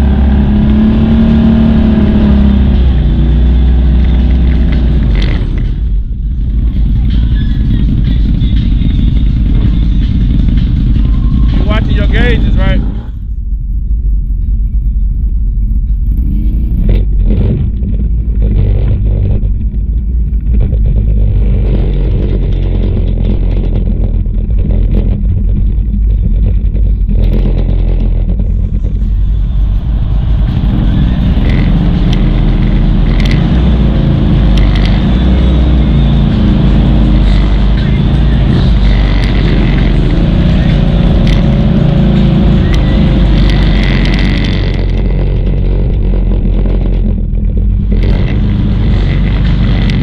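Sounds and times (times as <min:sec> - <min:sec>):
quad bike engines running: 0:00.0 - 0:50.0
rushing noise: 0:00.0 - 0:50.0
knocks and rattles: 0:16.8 - 0:36.6.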